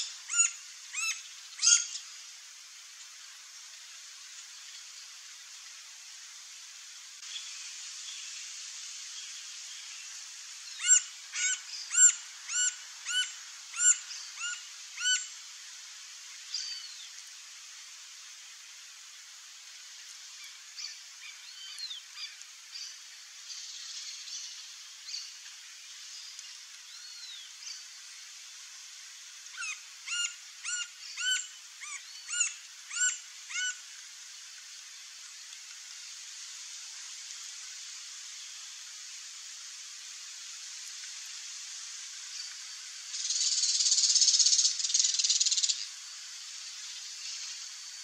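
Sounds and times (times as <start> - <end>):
woodpecker calling: 0.3 - 2.0, 10.8 - 15.2, 29.6 - 33.8.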